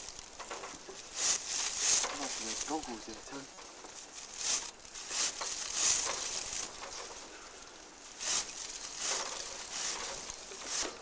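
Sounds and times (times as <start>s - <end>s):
straw thatch crunching and rustling: 0.0s - 11.0s.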